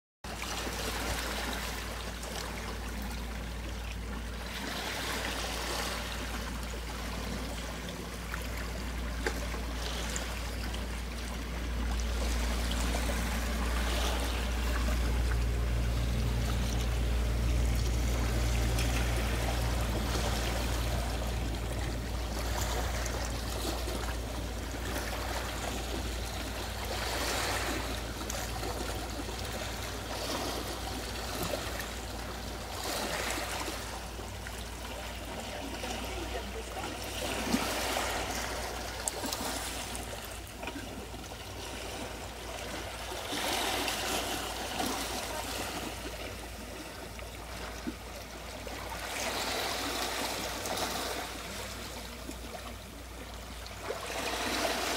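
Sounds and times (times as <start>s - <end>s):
waves washing over pebbles: 0.3s - 54.9s
steady low rumble: 1.9s - 49.2s.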